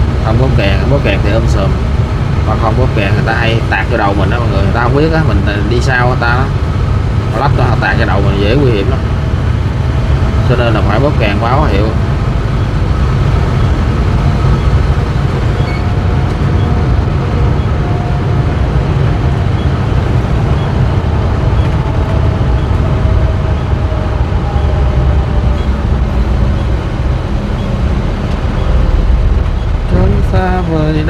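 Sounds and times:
road and engine rumble in car: 0:00.0 - 0:31.0.

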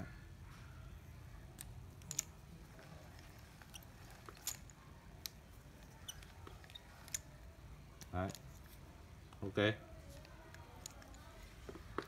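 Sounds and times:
fishing reel clicks and rustles: 0:01.6 - 0:08.8.

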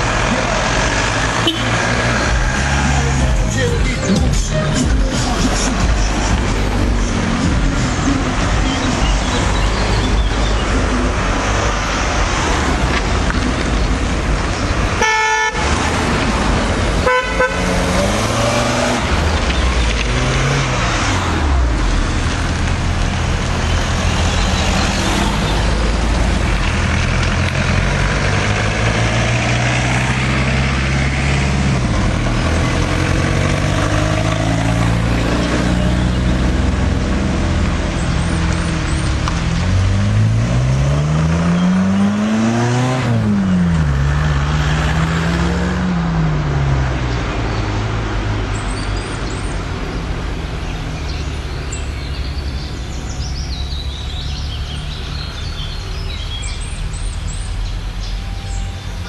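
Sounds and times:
car engines driving: 0:00.0 - 0:59.0
car horn: 0:01.3 - 0:02.4, 0:14.9 - 0:16.1, 0:16.9 - 0:18.1.

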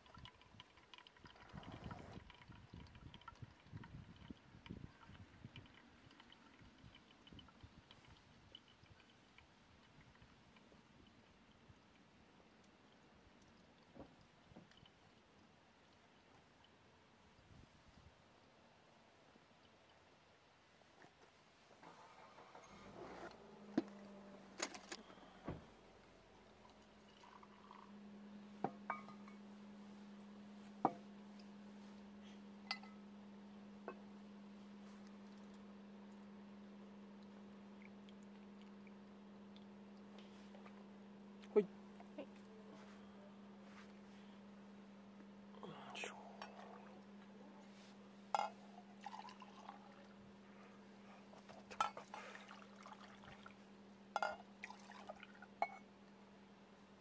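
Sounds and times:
water pouring: 0:00.0 - 0:11.6, 0:26.4 - 0:28.0, 0:48.3 - 0:50.1, 0:51.3 - 0:55.8
steady low hum: 0:22.2 - 0:57.0
metal mugs clinking: 0:28.6 - 0:29.4, 0:32.7 - 0:33.0, 0:48.4 - 0:49.4.

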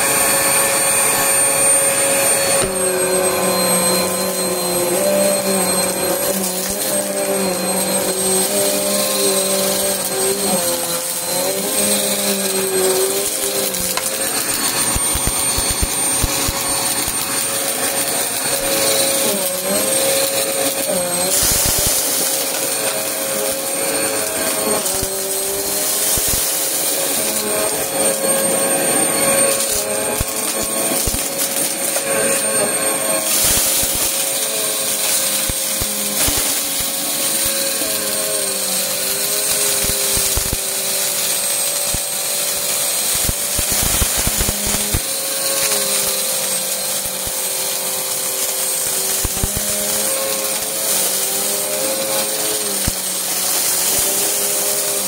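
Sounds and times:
vacuum motor whine: 0:00.0 - 0:55.0
debris crackling into vacuum: 0:03.6 - 0:28.2.

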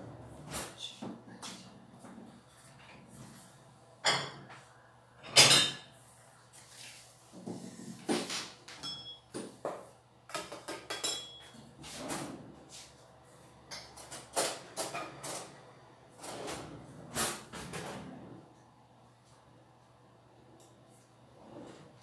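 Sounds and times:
plate and cutlery clinking: 0:08.8 - 0:09.2, 0:10.4 - 0:11.6.

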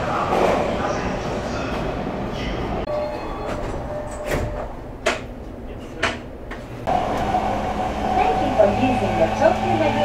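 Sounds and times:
subway car hum: 0:00.0 - 0:10.0.

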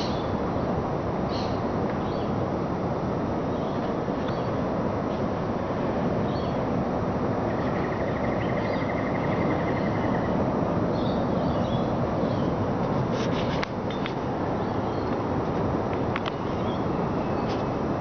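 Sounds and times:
faint bird chirps: 0:07.4 - 0:10.4.

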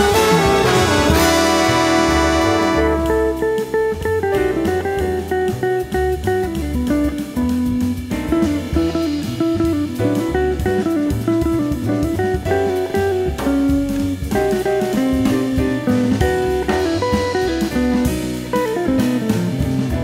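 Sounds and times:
drum kit: 0:00.0 - 0:20.0
jazz electric guitar solo: 0:00.0 - 0:20.0
walking bass: 0:00.0 - 0:20.0.

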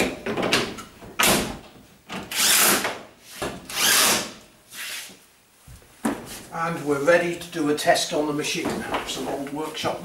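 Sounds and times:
cordless drill driving screws: 0:03.7 - 0:04.3.

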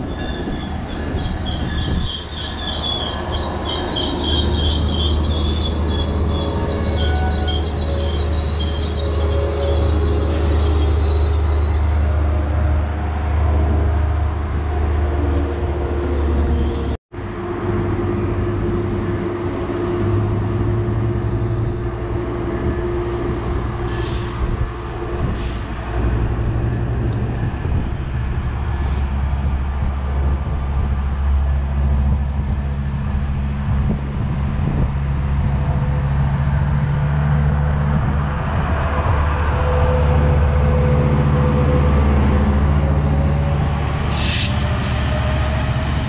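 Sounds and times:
diesel locomotive engine running: 0:11.8 - 0:46.0.

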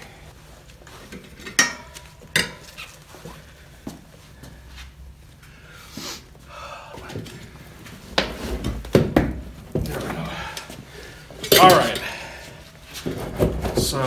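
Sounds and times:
metal tools striking wheel rim: 0:01.4 - 0:02.7.

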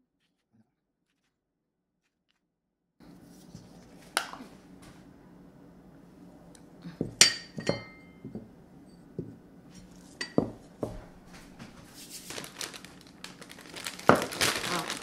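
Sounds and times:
ceramic plates clinking: 0:07.0 - 0:08.4, 0:10.2 - 0:10.6.

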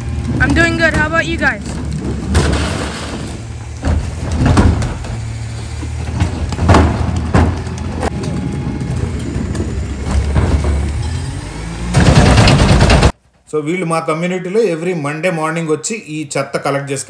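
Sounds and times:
garbage truck idling: 0:00.0 - 0:13.2
trash carts banging on truck: 0:00.0 - 0:13.2.

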